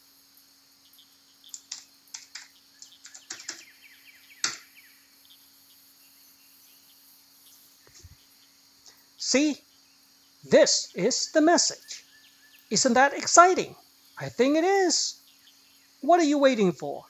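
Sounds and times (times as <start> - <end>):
faint steady hum: 0.0 - 17.0
keyboard typing: 1.5 - 3.6.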